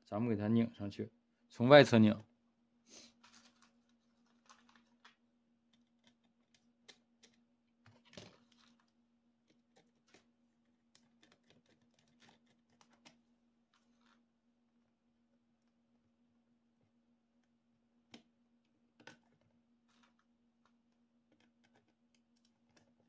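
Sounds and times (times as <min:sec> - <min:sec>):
faint steady hum: 0:00.0 - 0:23.0
small parts clattering: 0:03.2 - 0:08.9, 0:19.9 - 0:20.2.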